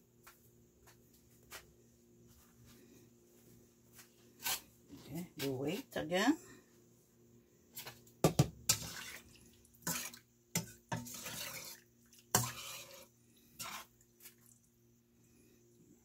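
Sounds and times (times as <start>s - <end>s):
liquid splashing and sloshing: 8.7s - 14.6s.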